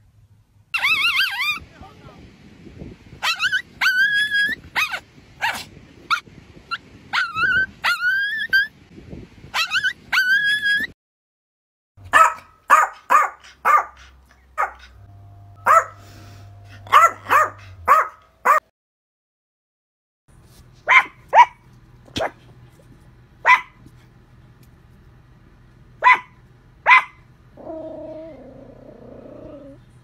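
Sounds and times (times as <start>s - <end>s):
small dog yipping and whining: 0.8s - 1.6s, 3.2s - 8.8s, 9.6s - 11.0s
dog barking sharply: 12.1s - 14.9s, 15.6s - 16.0s, 16.9s - 18.7s, 20.9s - 22.4s, 23.4s - 23.8s, 26.0s - 27.2s.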